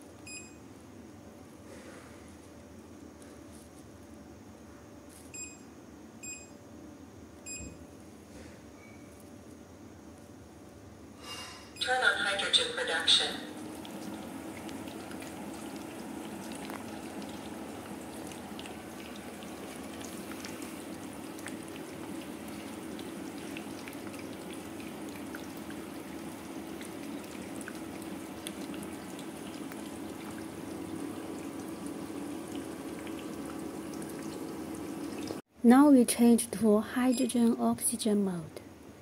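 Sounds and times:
gas bubbling through water: 0:13.6 - 0:35.4.

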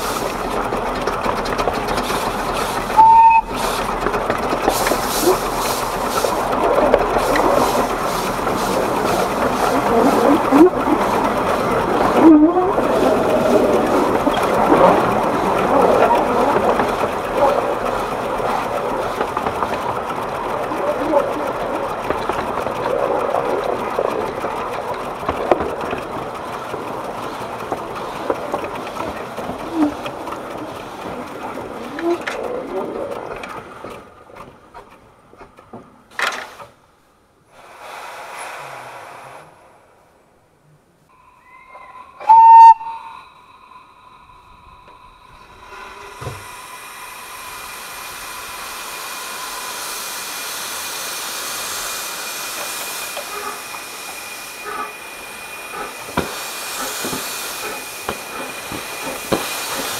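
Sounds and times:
steam hiss: 0:00.0 - 0:00.7, 0:04.6 - 0:12.1, 0:37.5 - 0:39.8, 0:41.1 - 0:59.9
steam locomotive running: 0:00.0 - 0:59.9
wheels on rail: 0:00.0 - 0:59.9
steam locomotive whistle: 0:02.9 - 0:03.6, 0:41.1 - 0:47.6, 0:53.2 - 0:56.2.

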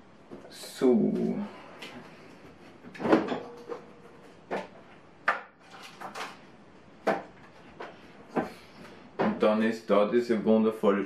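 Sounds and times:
cupboard door opening and shutting: 0:02.9 - 0:06.4
sharp knocks and clatter: 0:02.9 - 0:06.4, 0:07.0 - 0:08.6.

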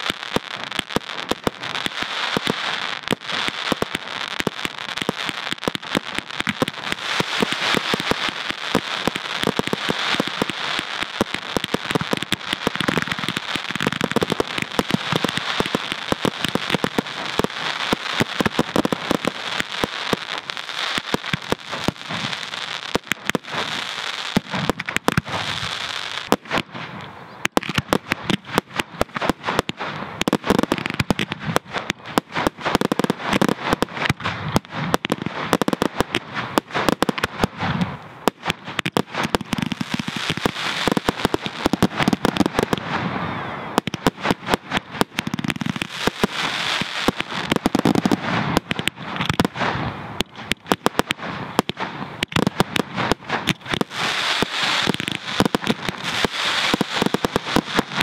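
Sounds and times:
fireworks bangs and crackling: 0:00.0 - 0:58.0.

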